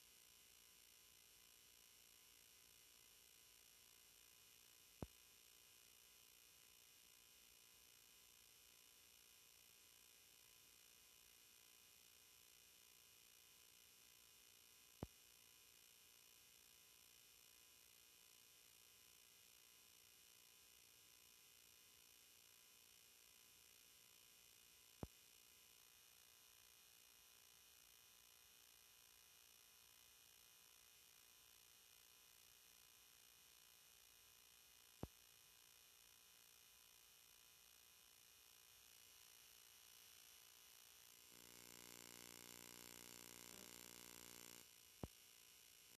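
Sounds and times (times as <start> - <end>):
faint electronic hiss and hum: 0.0 - 1.4, 2.4 - 6.2, 15.0 - 15.3, 25.0 - 45.9.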